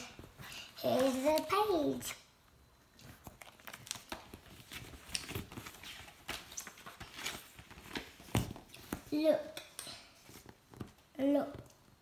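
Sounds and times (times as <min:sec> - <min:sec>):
book pages rustling: 0:00.1 - 0:01.7, 0:03.0 - 0:09.3, 0:10.2 - 0:11.0.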